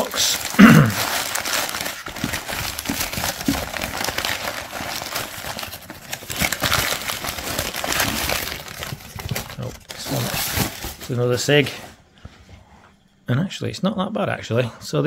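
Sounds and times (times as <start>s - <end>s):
newspaper crinkling: 0.0s - 11.9s.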